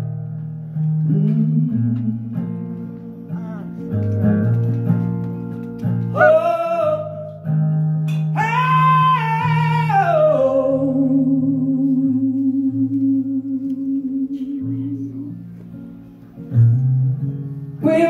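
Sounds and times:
acoustic guitar: 0:00.0 - 0:18.0
man singing: 0:06.1 - 0:07.4, 0:08.4 - 0:12.8.

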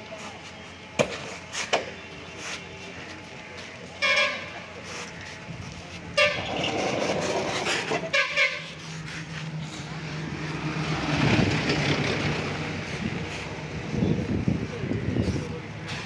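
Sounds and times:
engine running: 0:02.9 - 0:16.0
vehicle horns honking: 0:04.0 - 0:04.7, 0:06.1 - 0:07.0, 0:08.0 - 0:08.8
vehicle passing close by: 0:09.8 - 0:13.9.

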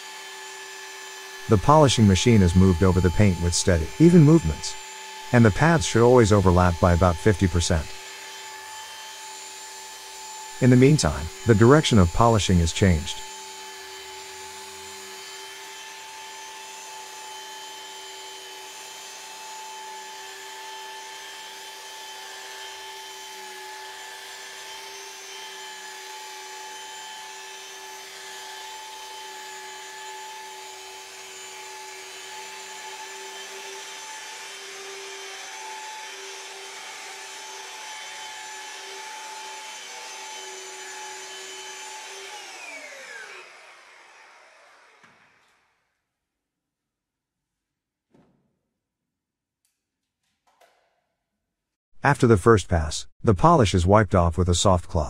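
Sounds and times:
rotary polisher running: 0:00.0 - 0:01.5, 0:02.5 - 0:05.2, 0:13.2 - 0:45.2.

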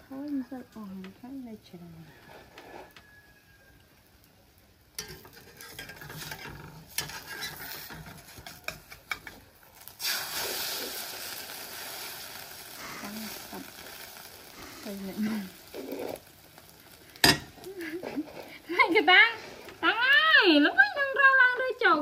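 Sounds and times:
egg sizzling in oil: 0:02.1 - 0:21.4
metal spatula scraping a wok: 0:05.0 - 0:09.4, 0:15.2 - 0:16.3.

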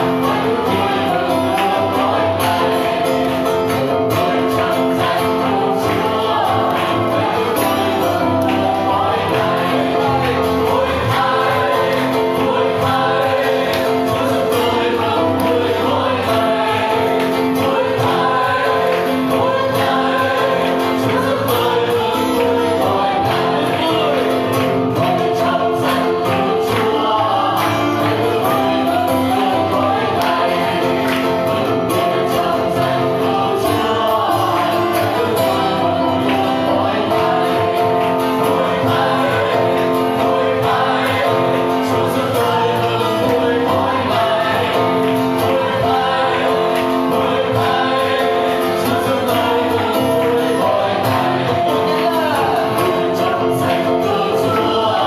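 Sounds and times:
acoustic guitar: 0:00.0 - 0:55.0
congregation singing worship song: 0:00.0 - 0:55.0
hands clapping to the beat: 0:00.0 - 0:55.0.

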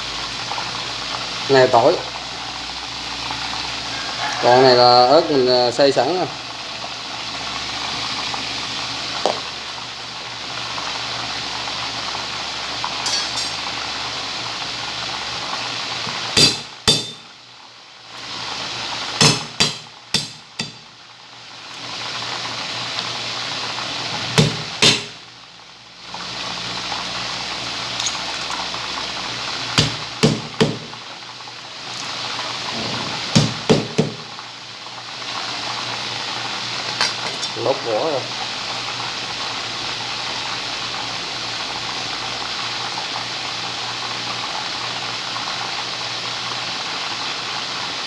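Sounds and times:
chicken frying in oil: 0:00.0 - 0:48.0
knife chopping on wooden board: 0:16.4 - 0:17.2, 0:19.2 - 0:20.8, 0:24.4 - 0:25.2, 0:29.8 - 0:30.9, 0:33.4 - 0:34.2.

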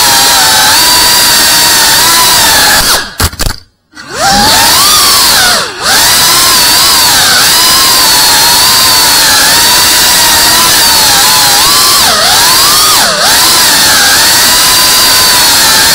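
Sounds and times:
drone motors whining: 0:04.0 - 0:15.9.

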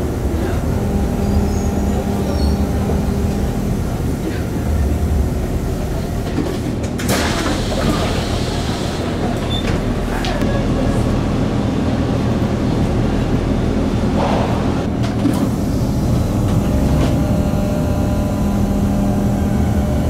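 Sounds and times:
train car low rumble: 0:00.0 - 0:20.0.

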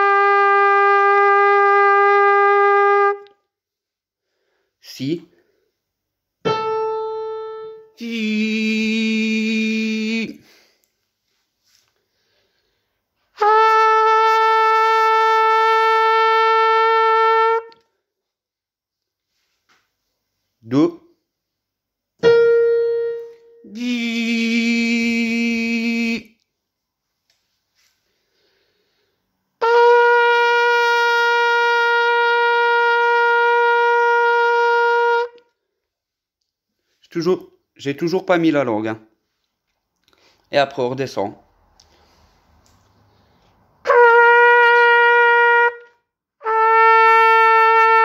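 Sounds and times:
trumpet long steady note: 0:00.0 - 0:03.3, 0:13.4 - 0:17.8, 0:29.6 - 0:35.4, 0:43.8 - 0:48.0.

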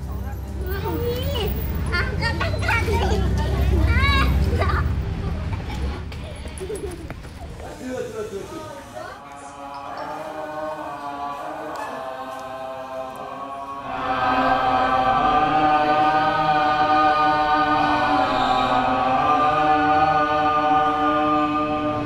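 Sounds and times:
group singing held notes: 0:09.2 - 0:22.0.

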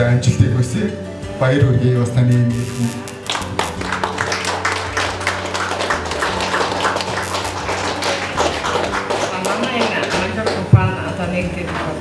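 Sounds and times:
audience applauding: 0:03.1 - 0:10.7.

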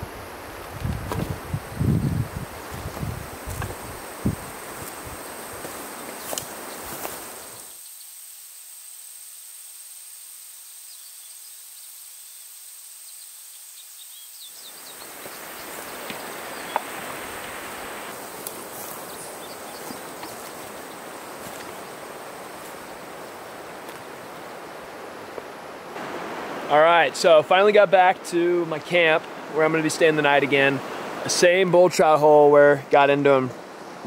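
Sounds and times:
high insect buzz: 0:00.0 - 0:26.6
faint chirps: 0:06.0 - 0:09.3, 0:10.2 - 0:17.0
river rushing over rocks: 0:14.7 - 0:34.0.

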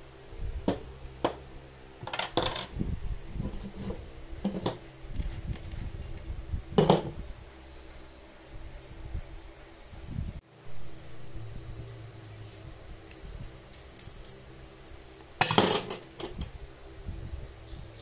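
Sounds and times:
metal parts clinking on table: 0:15.4 - 0:16.4.

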